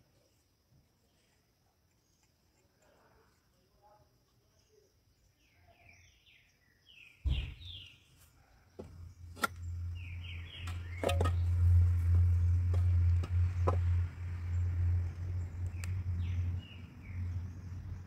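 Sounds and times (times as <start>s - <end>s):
small bird chirping: 4.4s - 18.0s
low rumble on microphone: 8.9s - 18.0s.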